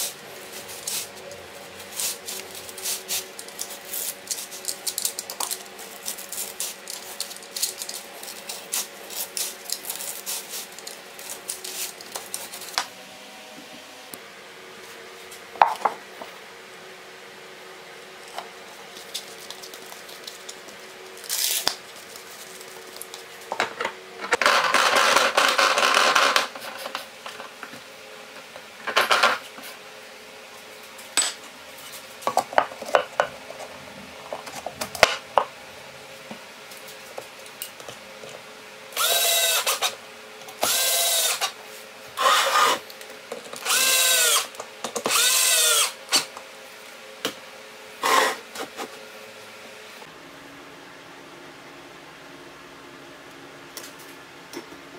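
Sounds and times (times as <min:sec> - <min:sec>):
electric drill running: 0:39.0 - 0:40.0, 0:40.6 - 0:41.6, 0:42.2 - 0:42.8, 0:43.6 - 0:46.3.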